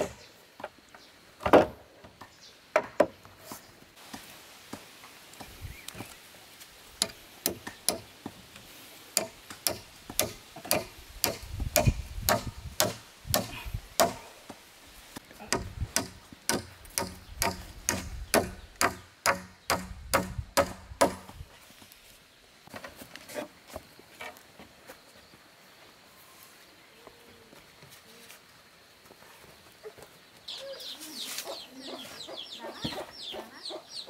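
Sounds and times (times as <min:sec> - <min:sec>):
sharp knocks: 0:15.5 - 0:21.4.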